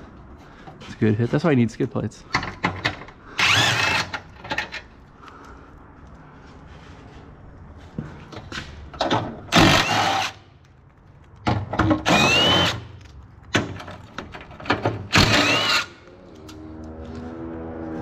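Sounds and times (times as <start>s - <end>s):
cordless power tool whining: 3.4s - 4.2s, 12.0s - 12.9s, 15.1s - 16.0s.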